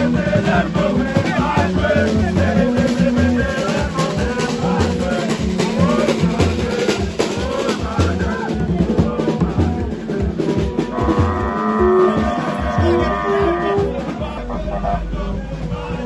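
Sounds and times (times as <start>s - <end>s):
hand drums beaten in quick rhythm: 0.0s - 16.0s
bending pitched voices: 10.2s - 15.7s.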